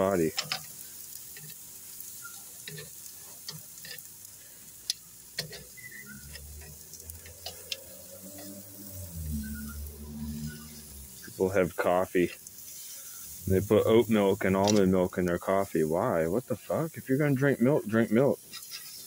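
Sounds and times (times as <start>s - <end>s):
steaks sizzling on a grill: 0.0s - 19.0s
fire pops: 2.2s - 7.8s, 13.4s - 15.4s
low hum: 6.1s - 12.2s
metal tongs clicking: 6.3s - 8.5s.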